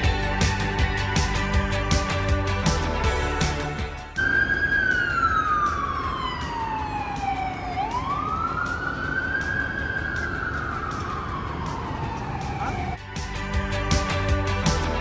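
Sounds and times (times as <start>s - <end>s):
city street noise: 0.0s - 15.0s
emergency vehicle siren wailing: 4.2s - 13.0s.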